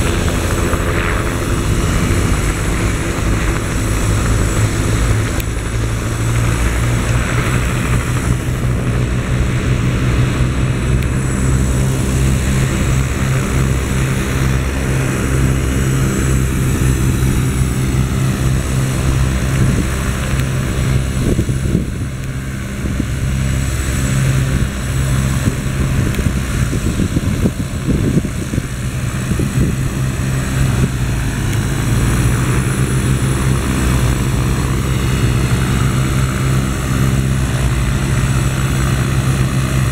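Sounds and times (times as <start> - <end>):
helicopter engine and rotor drone: 0.0 - 39.9.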